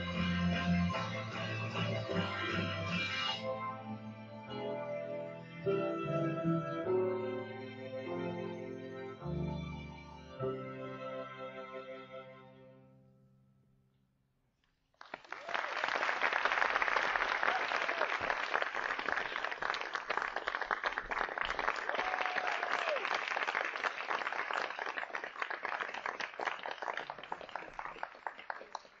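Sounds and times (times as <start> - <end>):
audience applause: 15.0 - 29.0.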